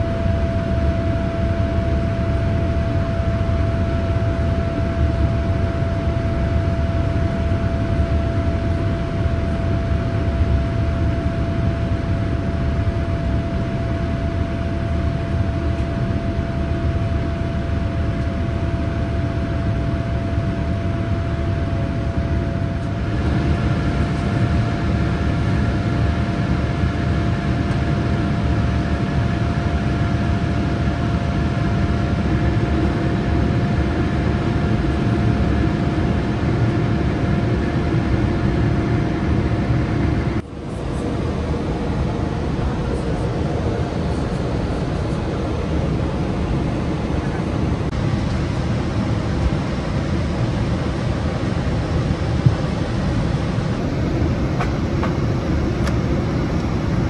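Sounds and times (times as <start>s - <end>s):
airliner cabin noise: 0.0s - 57.0s.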